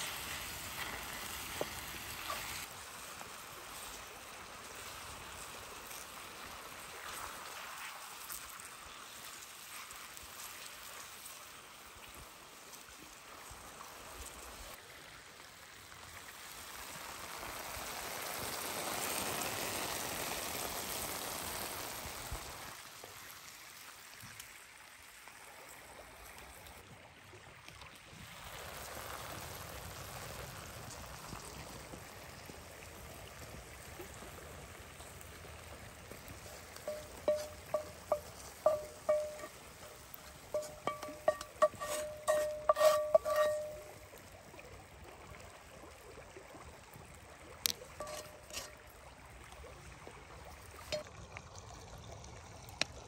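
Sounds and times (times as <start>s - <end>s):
hot oil sizzling in a pan: 0.0s - 26.0s, 28.2s - 44.2s, 47.7s - 48.8s.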